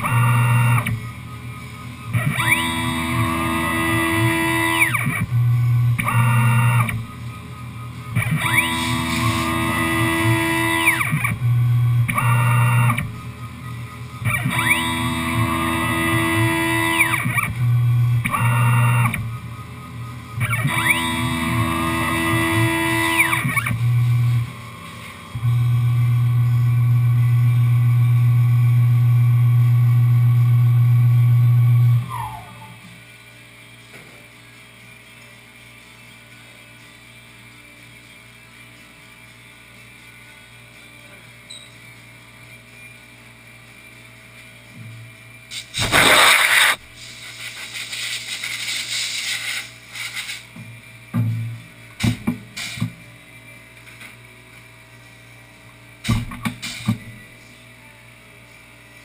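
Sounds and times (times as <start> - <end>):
milling machine motors whining: 0.0 - 33.7
milling machine low hum: 0.0 - 37.6.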